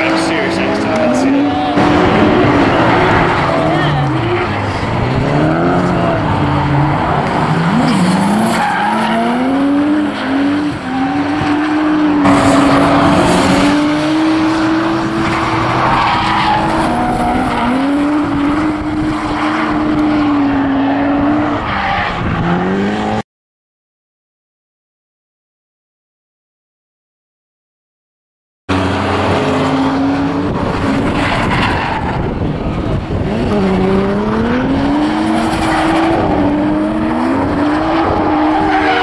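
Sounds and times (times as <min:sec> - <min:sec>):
car engine revving hard: 0:00.0 - 0:21.6, 0:22.2 - 0:23.2, 0:32.8 - 0:39.0.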